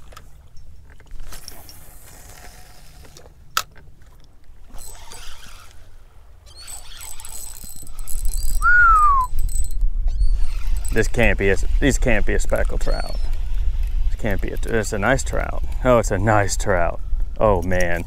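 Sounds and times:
faint handling clicks: 0:12.5 - 0:15.9.

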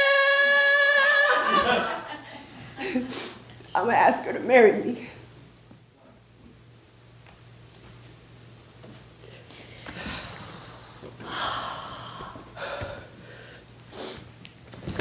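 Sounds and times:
woman gasping: 0:09.6 - 0:14.2.

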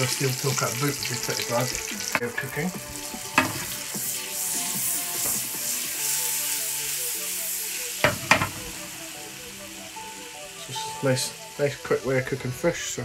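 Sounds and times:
butter sizzling in frying pan: 0:00.0 - 0:13.0
pan knocking on hob: 0:03.3 - 0:03.8, 0:08.0 - 0:08.8.

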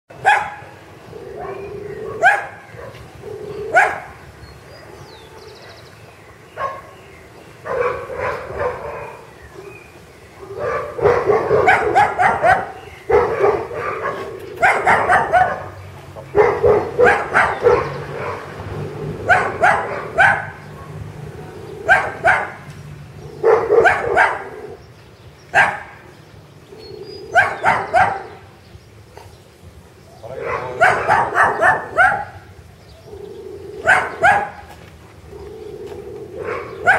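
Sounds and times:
dog barking: 0:00.2 - 0:00.7, 0:01.4 - 0:04.1, 0:06.6 - 0:07.0, 0:07.6 - 0:09.8, 0:10.4 - 0:18.5, 0:19.2 - 0:21.0, 0:21.8 - 0:22.6, 0:23.4 - 0:24.8, 0:25.5 - 0:26.0, 0:27.3 - 0:28.4, 0:30.4 - 0:32.5, 0:33.8 - 0:34.7, 0:36.4 - 0:36.9.

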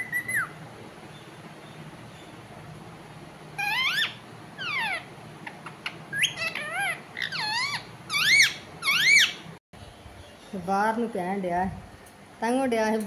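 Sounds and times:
parakeet whistled calls: 0:00.0 - 0:00.6, 0:03.6 - 0:05.1, 0:05.8 - 0:09.4.

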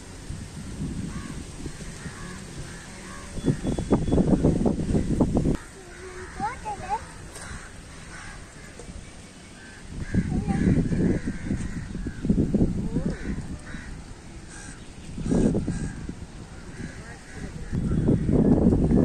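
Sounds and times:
wind rumble on microphone: 0:00.0 - 0:19.0
crows cawing: 0:01.0 - 0:03.7, 0:05.6 - 0:08.9, 0:09.6 - 0:12.4, 0:13.0 - 0:18.4.

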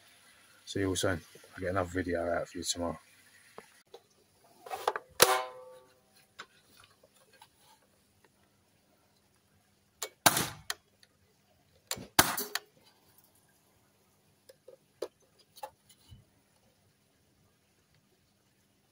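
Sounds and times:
air rifle shots: 0:10.2 - 0:10.7, 0:12.2 - 0:12.6.

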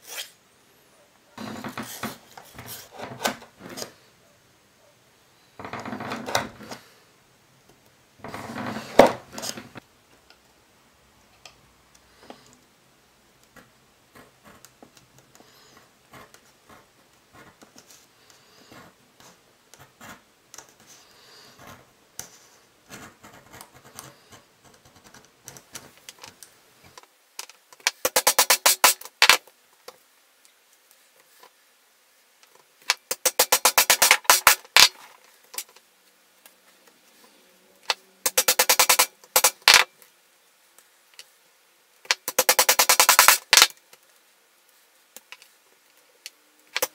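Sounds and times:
edge tool scraping and clicking: 0:32.9 - 0:35.0, 0:37.9 - 0:39.8.

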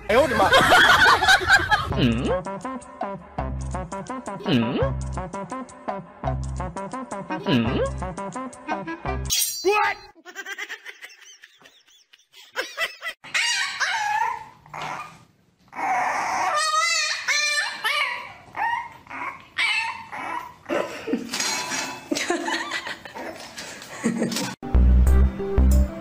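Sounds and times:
puppy yipping and whining: 0:13.2 - 0:20.6.

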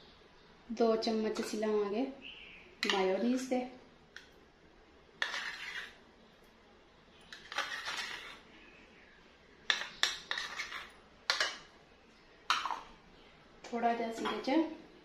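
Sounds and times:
spoon scraping ceramic bowl: 0:05.2 - 0:06.0, 0:07.3 - 0:08.5, 0:09.7 - 0:11.7, 0:12.5 - 0:12.9.

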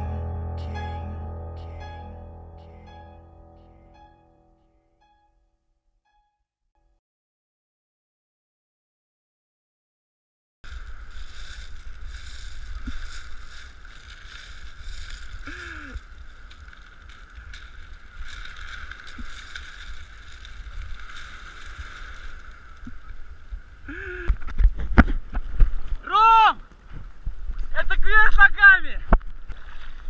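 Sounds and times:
wind rumbling on microphone: 0:10.6 - 0:30.0.

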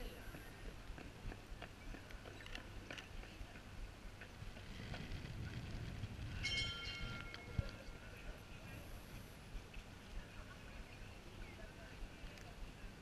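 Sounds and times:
high-pitched metallic squeal: 0:06.3 - 0:07.6.

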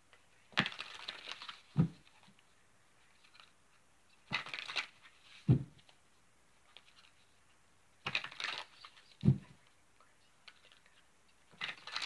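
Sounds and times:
cards being shuffled: 0:00.5 - 0:02.4, 0:03.1 - 0:06.0, 0:06.6 - 0:07.3, 0:08.0 - 0:09.6, 0:10.4 - 0:12.0.

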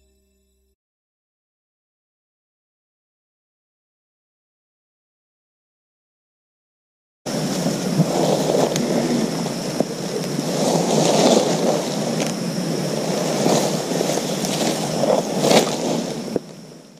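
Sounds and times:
high-pitched hiss: 0:07.3 - 0:16.9
wind buffeting microphone: 0:07.3 - 0:16.9.

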